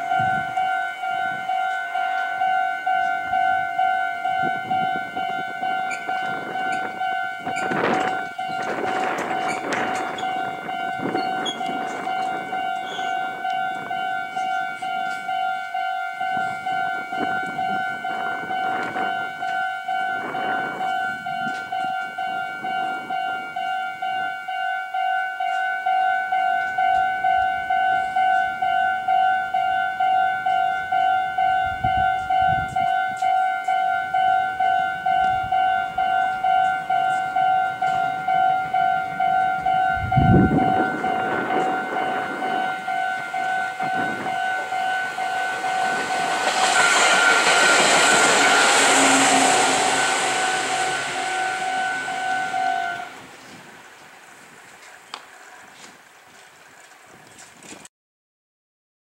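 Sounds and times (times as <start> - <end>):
passing train rushing: 0.0 - 25.0, 26.2 - 56.3
level crossing bell ringing: 9.5 - 53.2.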